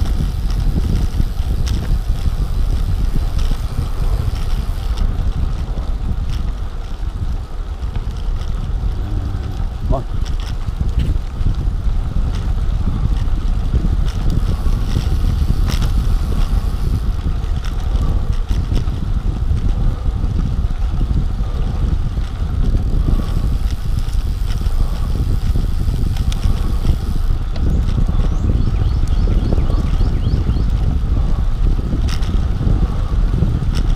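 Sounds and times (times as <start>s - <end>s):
wind rushing over microphone: 0.0s - 33.9s
faint ticks: 23.0s - 28.1s.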